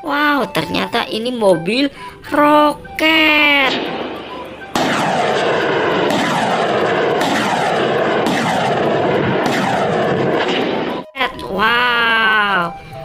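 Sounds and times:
rockets launching: 3.7s - 11.1s.

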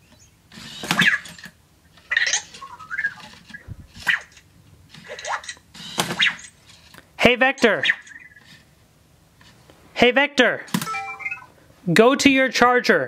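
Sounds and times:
robot electronic chirps: 10.9s - 11.6s.

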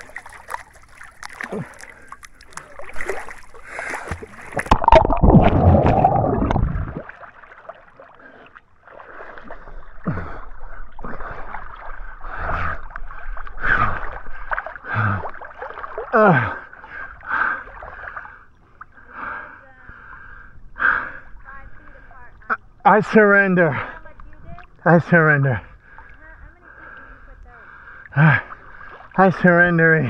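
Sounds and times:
burst of churning water: 0.0s - 18.3s
pool water splashing: 0.0s - 19.9s.

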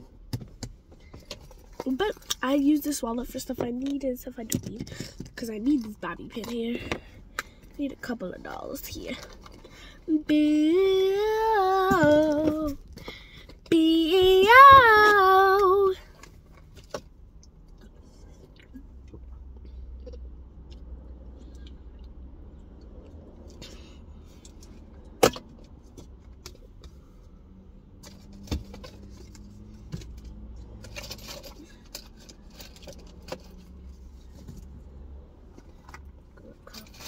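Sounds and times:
child singing: 10.2s - 12.8s, 13.7s - 16.0s.

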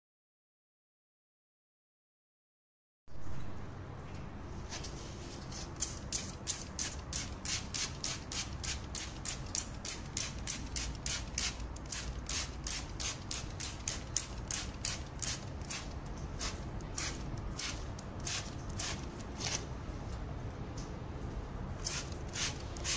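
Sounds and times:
spray bottle squirting: 5.6s - 19.6s, 21.8s - 22.9s.

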